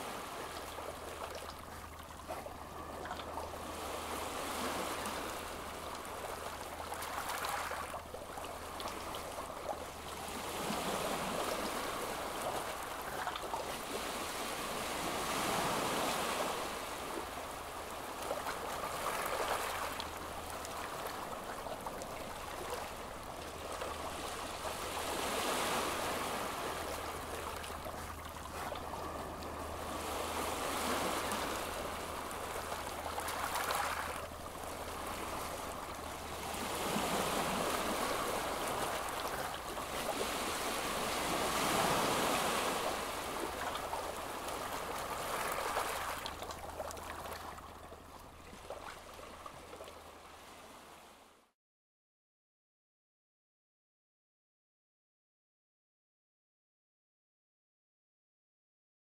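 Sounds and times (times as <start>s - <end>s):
sea waves rushing: 0.0s - 8.0s, 8.6s - 47.6s.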